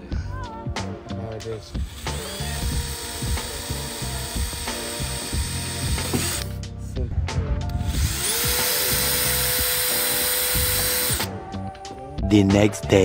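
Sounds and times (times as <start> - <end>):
background music: 0.0 - 13.0
cordless drill whining: 1.8 - 6.6, 7.7 - 11.4.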